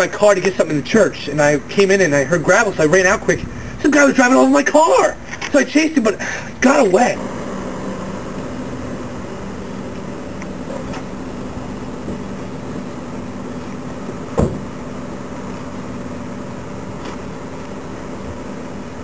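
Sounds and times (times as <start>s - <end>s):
steady mechanical hum: 0.0s - 19.0s
car door slam: 14.3s - 14.7s.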